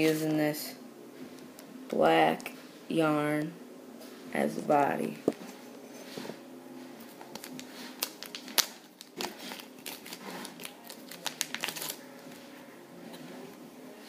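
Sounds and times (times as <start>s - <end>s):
plastic packet crinkling: 7.1s - 12.0s.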